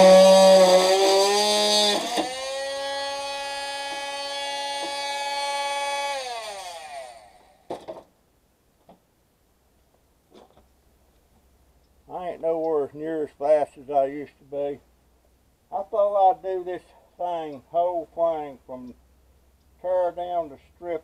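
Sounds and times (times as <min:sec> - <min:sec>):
power tool whining: 0:00.0 - 0:07.9.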